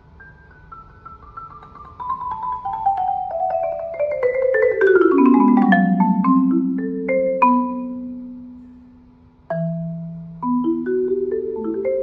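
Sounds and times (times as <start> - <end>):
marimba played with mallets: 0.1 - 8.9, 9.5 - 12.0.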